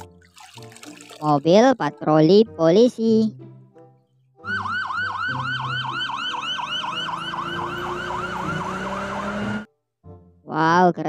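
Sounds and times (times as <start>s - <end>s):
police siren yelping: 4.4s - 9.7s.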